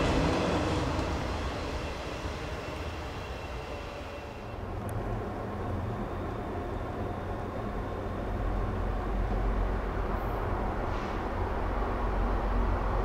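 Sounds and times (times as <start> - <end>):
diesel locomotive engine drone: 0.0 - 13.0
freight train rumbling: 0.0 - 13.0.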